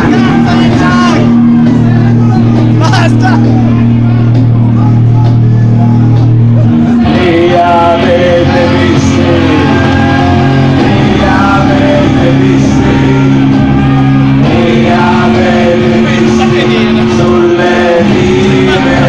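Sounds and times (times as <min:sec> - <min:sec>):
live band playing low chords: 0:00.0 - 0:19.0
person singing: 0:04.7 - 0:19.0.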